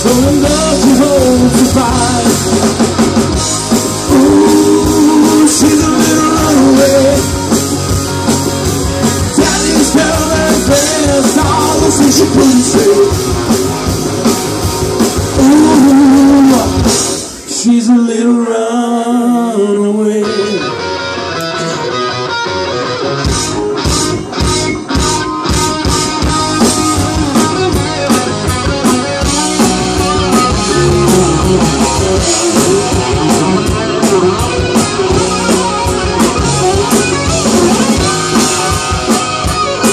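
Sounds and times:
man singing: 0.0s - 2.8s, 4.0s - 7.5s, 9.2s - 13.6s, 15.3s - 20.9s
drum kit: 0.0s - 17.6s, 21.4s - 39.9s
bass guitar: 0.0s - 39.9s
distorted electric guitars: 0.0s - 39.9s.

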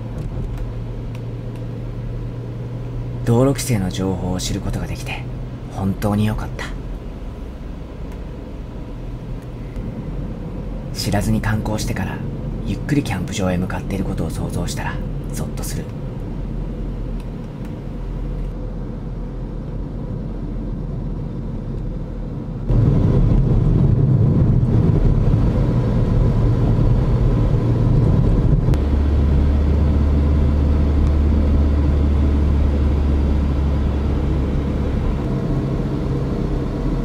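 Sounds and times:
car engine and road rumble: 0.0s - 37.0s
deep steady hum: 0.0s - 37.0s.

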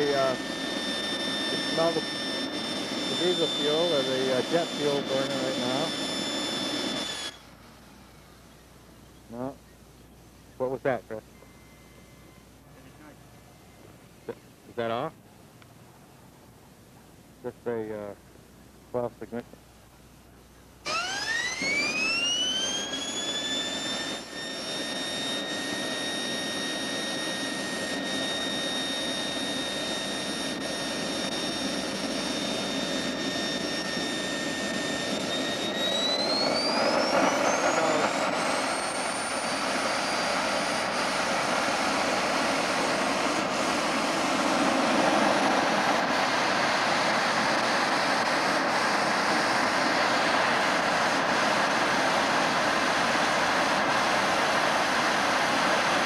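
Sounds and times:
jet engine rushing roar: 0.0s - 9.6s, 20.8s - 56.0s
jet turbine whine: 0.0s - 56.0s.

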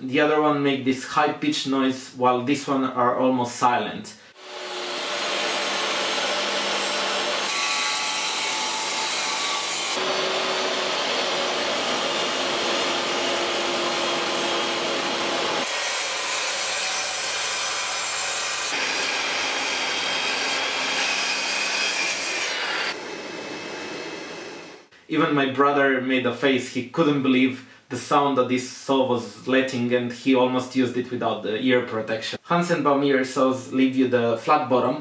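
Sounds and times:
miter saw crosscutting: 4.4s - 23.0s
table saw ripping wood: 4.4s - 24.8s.

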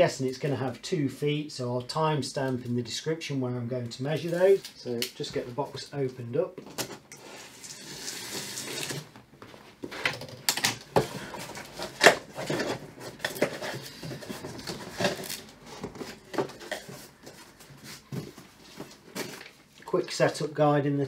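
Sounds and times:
cardboard rustling scrape: 11.0s - 19.6s.

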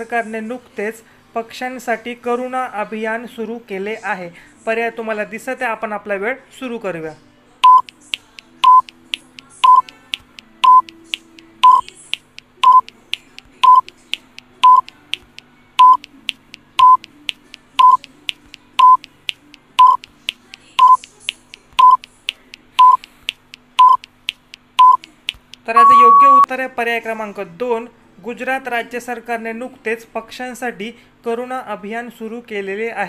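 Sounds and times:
faint timer ticks: 7.6s - 26.5s
loud electronic beep: 11.6s - 11.8s, 25.8s - 26.5s.

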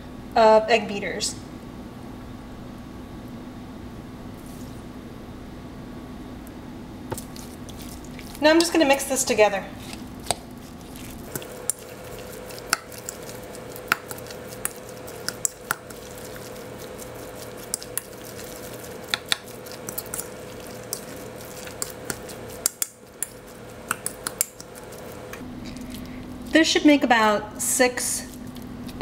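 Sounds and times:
utensil mashing wet mixture: 7.1s - 26.7s
utensil tapping bowl: 11.3s - 25.4s.

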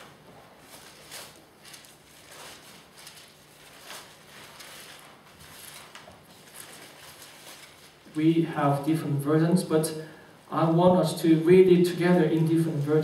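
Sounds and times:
paper pages rustling: 0.0s - 8.1s
low steady hum: 0.0s - 13.0s.

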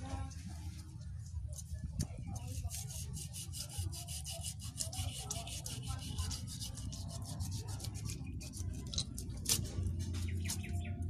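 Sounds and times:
knife scraping fish scales: 2.4s - 10.4s.

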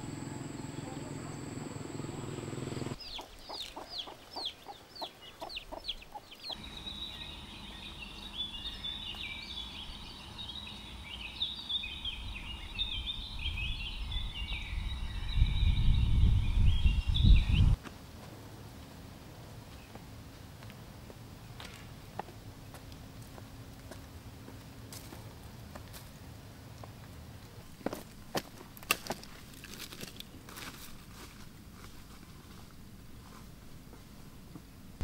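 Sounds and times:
birds chirping: 0.0s - 17.8s.

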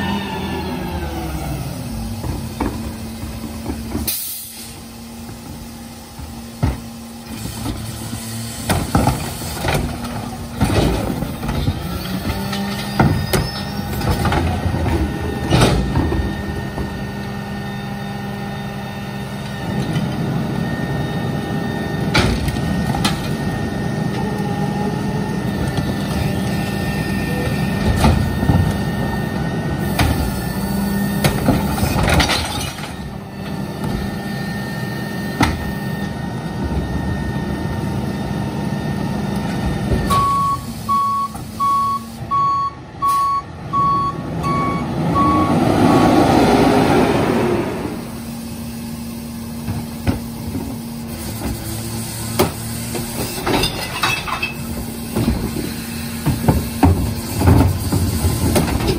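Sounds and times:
garbage truck engine running: 0.0s - 58.9s
repeating electronic beep alarm: 40.1s - 45.6s.

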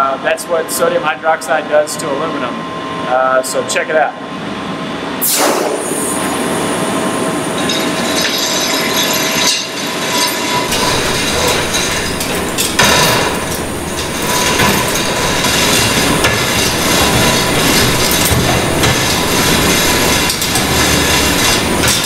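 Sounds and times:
ventilation noise rushing: 0.0s - 22.0s
metal clanks: 7.5s - 22.0s
hoist chain rattling and clinking: 7.6s - 22.0s.

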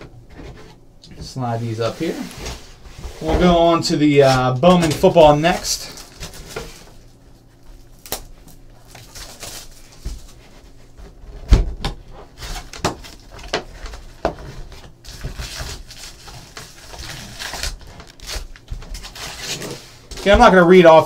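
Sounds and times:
foil packs handled: 1.6s - 10.7s, 12.3s - 21.0s
plastic shrink wrap crinkling: 4.2s - 10.4s, 12.4s - 21.0s.

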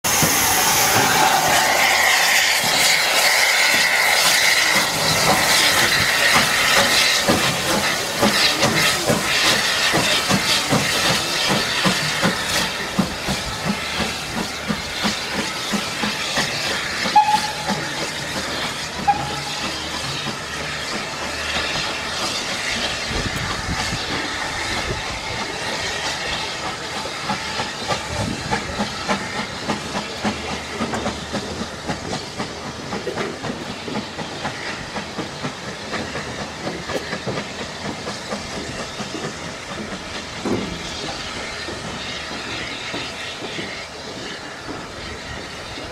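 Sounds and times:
steam locomotive hissing steam: 0.0s - 45.9s
locomotive exhaust beats: 0.1s - 26.0s.

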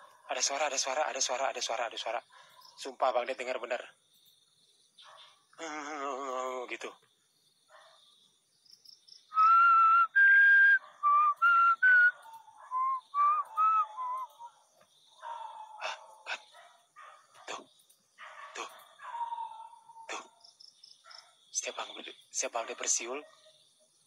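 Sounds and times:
person whistling: 9.4s - 12.1s, 12.7s - 14.4s.

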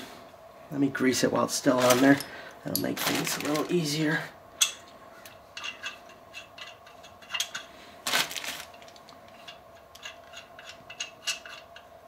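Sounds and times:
metal tools clinking: 1.8s - 3.7s, 4.6s - 7.7s, 8.6s - 11.9s.

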